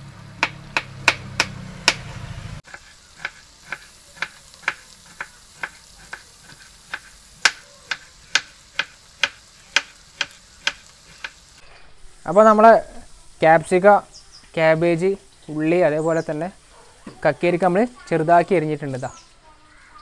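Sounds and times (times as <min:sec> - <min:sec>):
knife chopping on wooden board: 0:00.4 - 0:02.1, 0:02.7 - 0:11.4.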